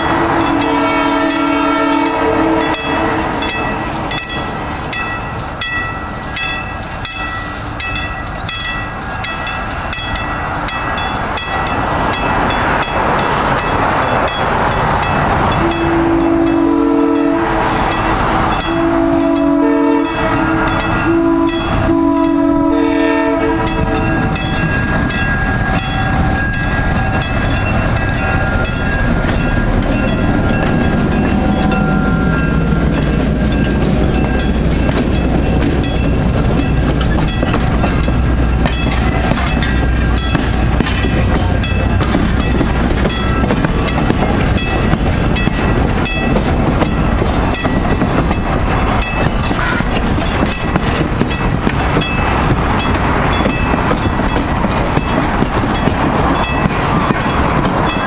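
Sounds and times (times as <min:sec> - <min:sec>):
train horn blasts: 0:00.0 - 0:04.0, 0:15.5 - 0:24.8
bell clanging: 0:00.0 - 0:58.0
diesel locomotive engine passing: 0:00.0 - 0:58.0
train wheels clattering: 0:00.0 - 0:58.0.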